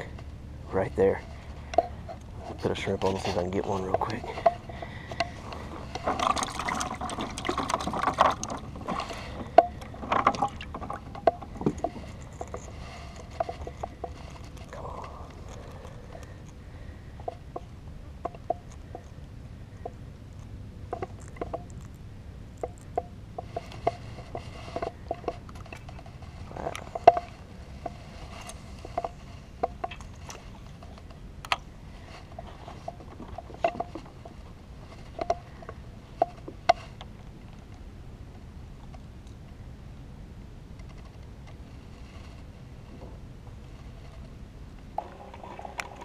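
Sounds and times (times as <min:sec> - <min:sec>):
low steady rumble: 0:00.0 - 0:46.0
fishing rod and reel knocking: 0:17.2 - 0:19.2.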